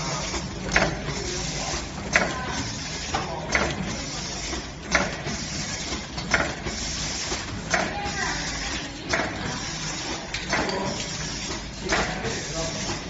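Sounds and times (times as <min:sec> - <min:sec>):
machine clacking: 0:00.0 - 0:13.0
packing machine running: 0:00.0 - 0:13.0.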